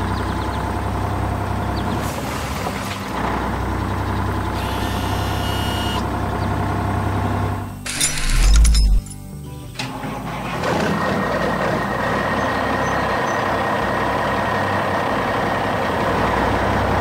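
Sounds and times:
cartoon engine running: 0:04.5 - 0:06.1.

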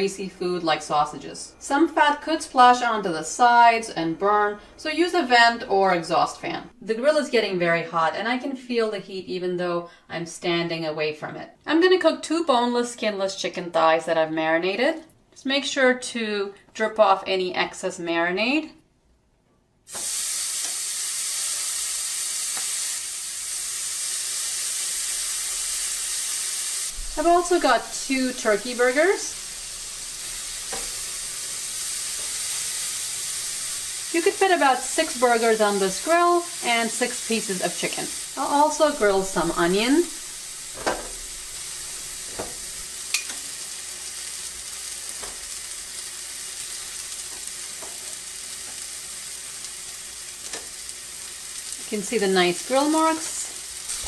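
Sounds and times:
chicken sizzling on a grill: 0:19.9 - 0:54.0
metal tongs clicking: 0:43.1 - 0:43.4.

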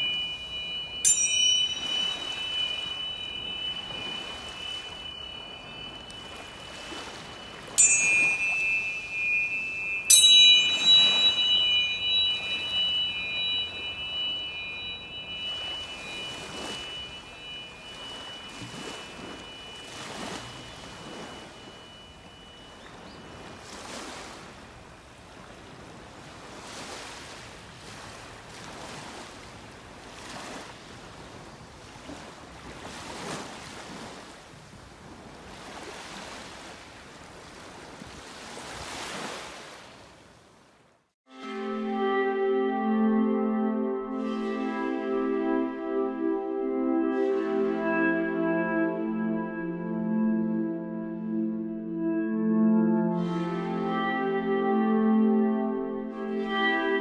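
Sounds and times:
tuning forks ringing: 0:00.0 - 0:24.4
ocean surf: 0:00.0 - 0:40.3.

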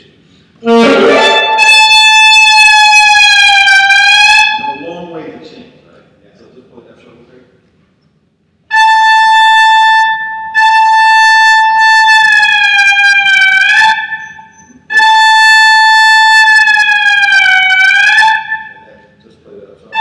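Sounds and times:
alto saxophone high note: 0:00.6 - 0:05.1.

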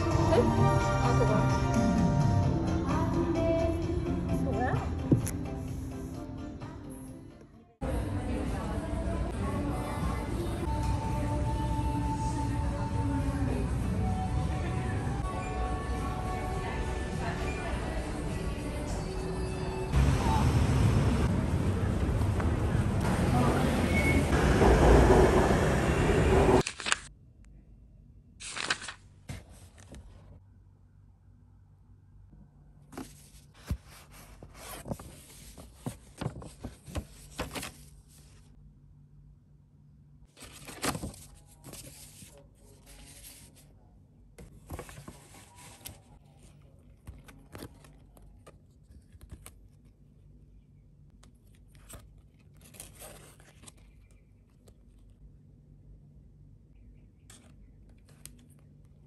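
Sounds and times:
rustling handling noise: 0:32.9 - 0:38.5, 0:40.3 - 0:43.7, 0:44.4 - 0:50.0.

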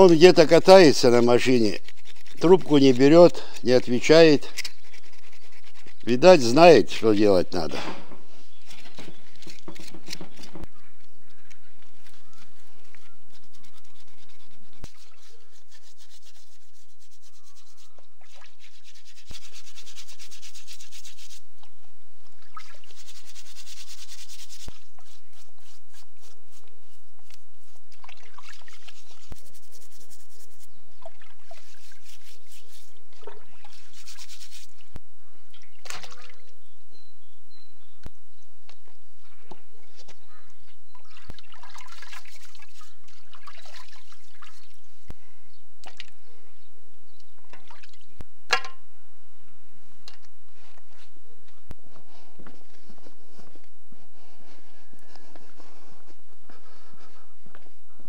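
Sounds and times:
knife scraping skin: 0:01.5 - 0:06.2.

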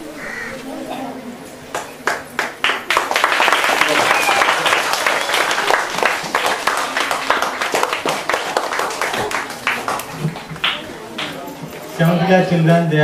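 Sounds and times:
children's voices: 0:00.0 - 0:01.6
children clapping: 0:01.7 - 0:11.4.

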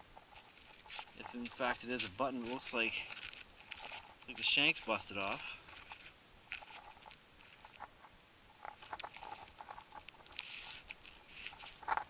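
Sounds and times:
soil crumbling: 0:00.2 - 0:08.0.

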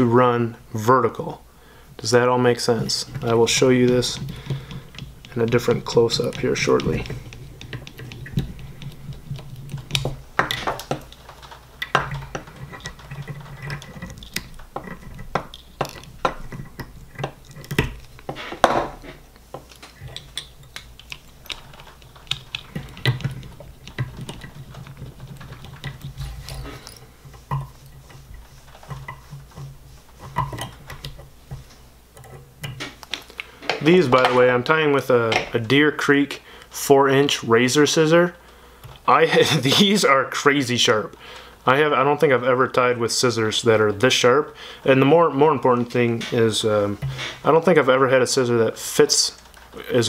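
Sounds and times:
low steady hum: 0:00.0 - 0:50.0
small metal parts clicking: 0:02.9 - 0:18.3, 0:19.3 - 0:28.1.

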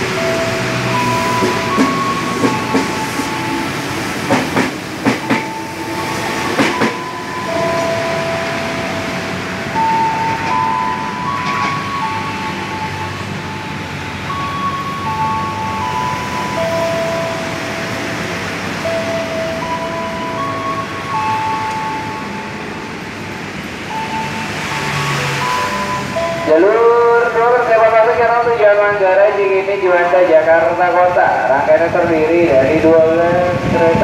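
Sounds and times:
train rumble: 0:00.0 - 0:34.0
train wheels clacking over rail joints: 0:00.9 - 0:08.7, 0:09.4 - 0:12.2.

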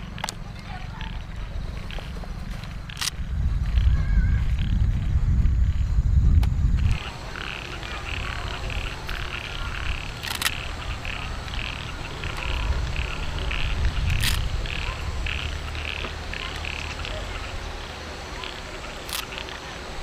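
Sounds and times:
low rumble: 0:00.0 - 0:18.4
frogs croaking: 0:00.0 - 0:20.0
sharp snaps: 0:06.3 - 0:17.2, 0:18.4 - 0:19.6.

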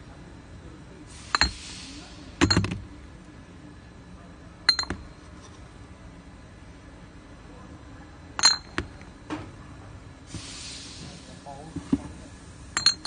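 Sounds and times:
glass bottles clinking: 0:04.7 - 0:05.1, 0:08.4 - 0:09.0, 0:12.8 - 0:13.0.

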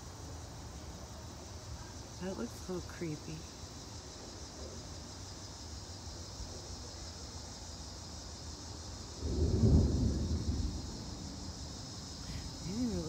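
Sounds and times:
crickets chirping: 0:00.0 - 0:13.0
low rumble of thunder: 0:09.0 - 0:13.0.

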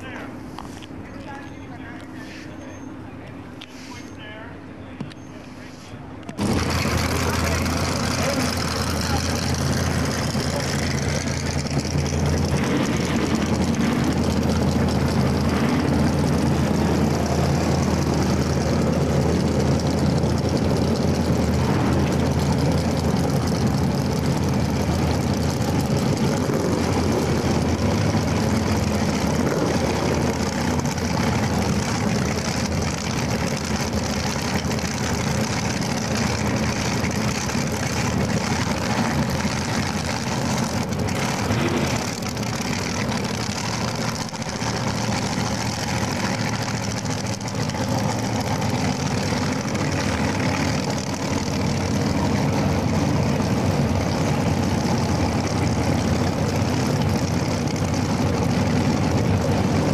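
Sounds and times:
dragster engine idling: 0:06.1 - 0:59.9.

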